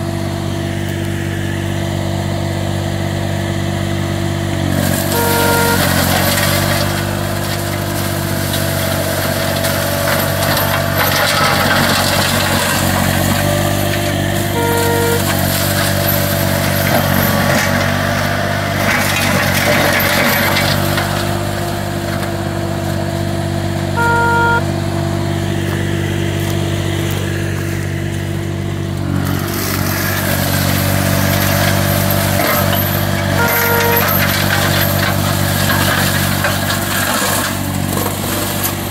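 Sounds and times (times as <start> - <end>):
mower engine running: 0.0 - 38.9
short beep: 5.0 - 6.6, 14.5 - 15.7, 24.0 - 24.7, 33.4 - 34.4.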